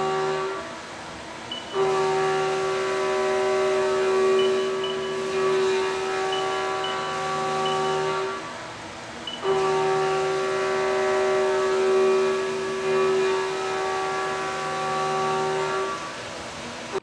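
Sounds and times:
spraying coolant hiss: 0.0 - 17.0
milling machine high-pitched whine: 1.5 - 8.4, 9.2 - 10.6.

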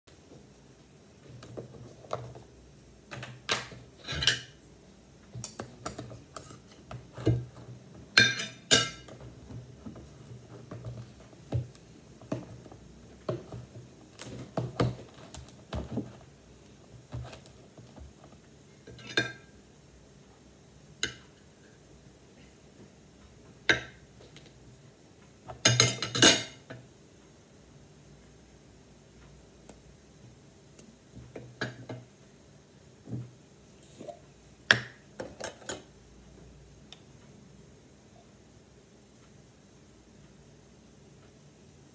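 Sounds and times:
spoons clinking on ceramic plate: 4.0 - 4.6, 8.2 - 9.1, 25.6 - 26.6
tableware clattering: 4.0 - 4.6, 8.1 - 9.2, 18.9 - 19.5, 25.6 - 26.7.

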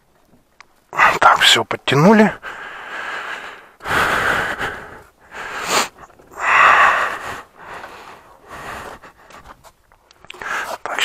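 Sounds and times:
person breathing loudly: 2.4 - 9.6.

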